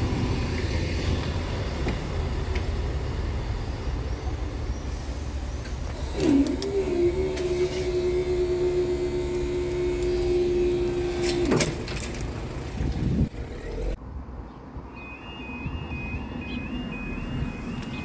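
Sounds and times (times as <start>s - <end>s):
barrier motor hum: 5.8s - 14.0s
two-tone electronic warning alarm: 15.0s - 18.0s.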